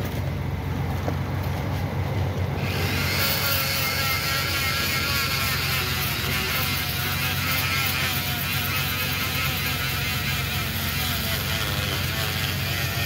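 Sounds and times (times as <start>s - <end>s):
electric rotary tool humming: 2.6s - 13.0s
sanding hiss with wavering whine: 2.7s - 13.0s.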